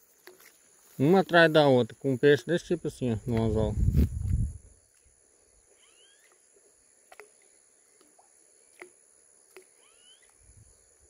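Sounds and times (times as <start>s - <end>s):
high-pitched insect drone: 3.9s - 8.6s, 9.3s - 11.0s
faint rising whistled calls: 5.1s - 10.8s
faint ticks: 5.8s - 10.5s.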